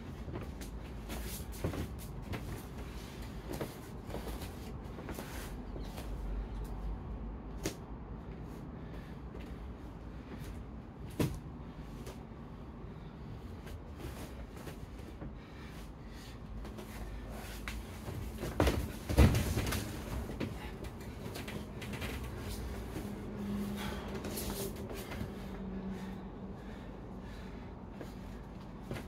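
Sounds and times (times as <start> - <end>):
people scuffling on foam mats: 0.0 - 6.6, 13.0 - 29.0
body thudding onto mat: 18.2 - 20.2.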